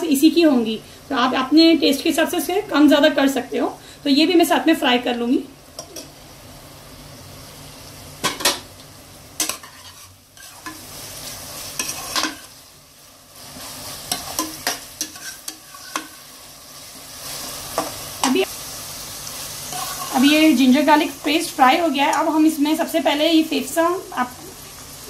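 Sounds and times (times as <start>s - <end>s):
onions sizzling in oil: 0.0s - 25.0s
spoon scraping and knocking pot: 14.1s - 16.2s.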